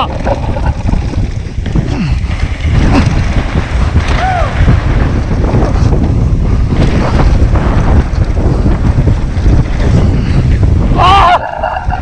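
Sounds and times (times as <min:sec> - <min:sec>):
bike knocking over rough ground: 0:00.0 - 0:10.9
bike tyres rolling on dirt: 0:00.0 - 0:12.0
wind buffeting microphone: 0:00.0 - 0:12.0.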